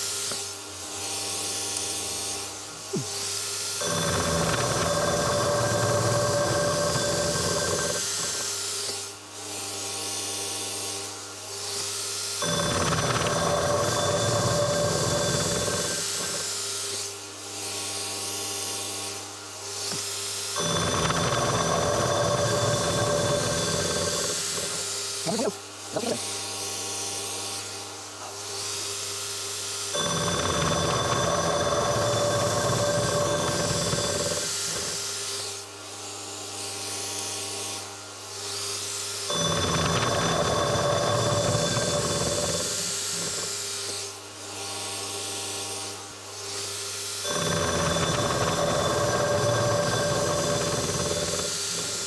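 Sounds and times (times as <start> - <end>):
spindle humming: 3.8 - 8.5, 12.4 - 16.6, 20.6 - 26.1, 30.0 - 35.0, 39.3 - 43.5, 47.3 - 52.0
gear cutter cutting metal: 3.8 - 9.1, 11.7 - 17.2, 19.8 - 26.2, 30.0 - 35.6, 39.2 - 44.2, 47.2 - 52.0.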